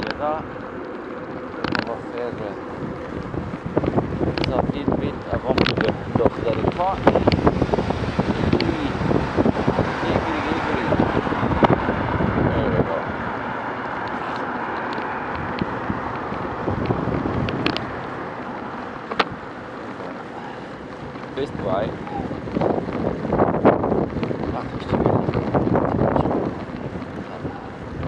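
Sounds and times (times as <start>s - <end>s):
road and traffic noise: 0.0s - 28.0s
wind on microphone: 0.0s - 28.0s
sharp clicks: 1.6s - 2.0s, 3.2s - 4.6s, 14.0s - 21.4s.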